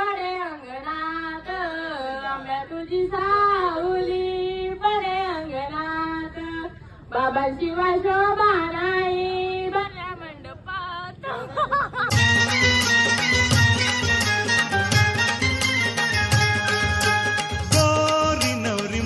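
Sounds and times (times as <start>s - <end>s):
woman singing unaccompanied: 0.0s - 11.6s.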